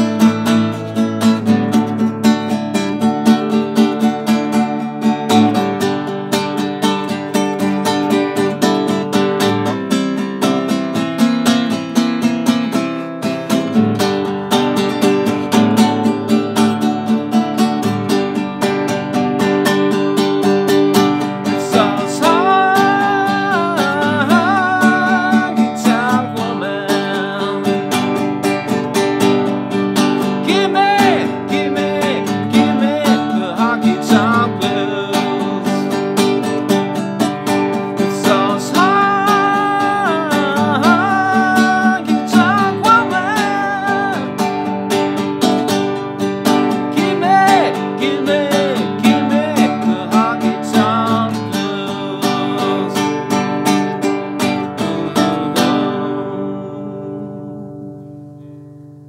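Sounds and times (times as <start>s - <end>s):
strummed classical guitar: 0.0s - 59.0s
man singing: 21.0s - 57.9s.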